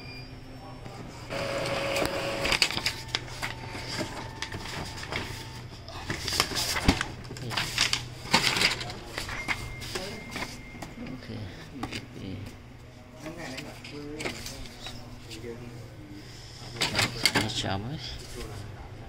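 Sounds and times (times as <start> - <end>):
printer motors whirring: 0.8 - 10.9.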